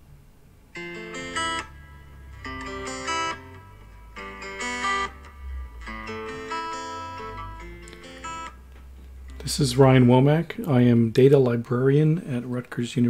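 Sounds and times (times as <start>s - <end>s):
guitar chords: 0.7s - 11.7s.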